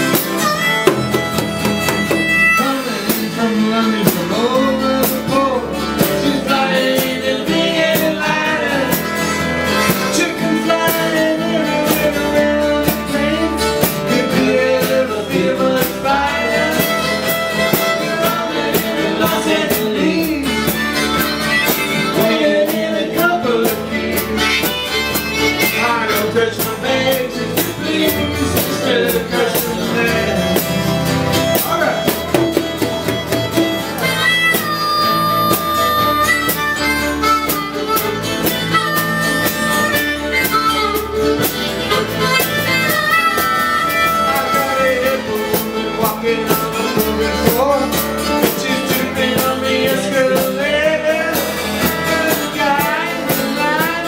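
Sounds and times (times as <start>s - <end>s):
harmonica: 0.0s - 54.0s
strummed acoustic guitars: 0.0s - 54.0s
man singing: 2.2s - 32.2s, 41.8s - 54.0s.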